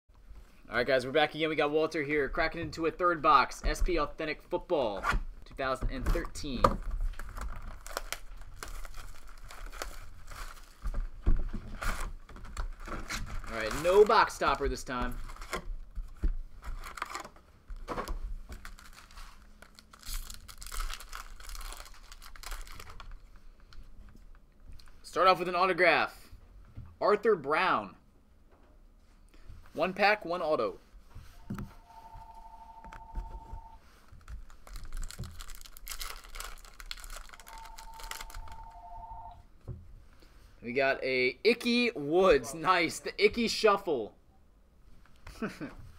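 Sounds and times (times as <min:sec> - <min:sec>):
cards rustling and shuffling: 0:05.6 - 0:25.0, 0:32.7 - 0:38.7
foil wrappers tearing and crinkling: 0:06.9 - 0:10.9, 0:11.7 - 0:14.6, 0:16.7 - 0:17.3, 0:18.5 - 0:23.2, 0:34.1 - 0:38.5
two-note electronic tone: 0:31.4 - 0:33.8, 0:37.4 - 0:39.4.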